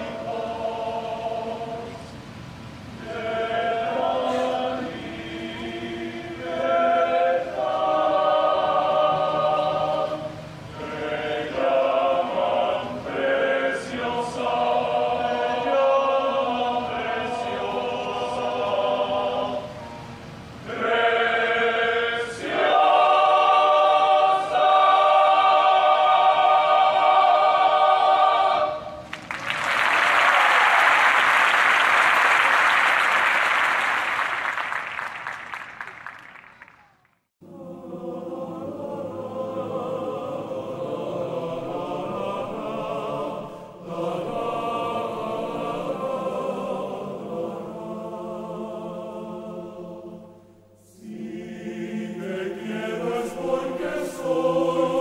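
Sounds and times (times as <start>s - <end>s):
men's choir singing in harmony: 0.0s - 2.3s, 3.0s - 29.0s, 37.4s - 55.0s
audience applauding: 29.0s - 37.2s.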